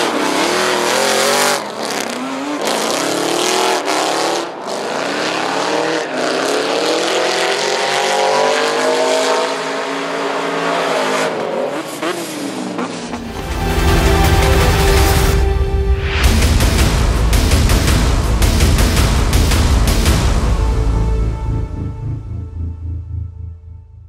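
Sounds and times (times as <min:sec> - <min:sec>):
car engines revving: 0:00.0 - 0:15.5
music with deep bass: 0:13.2 - 0:24.0.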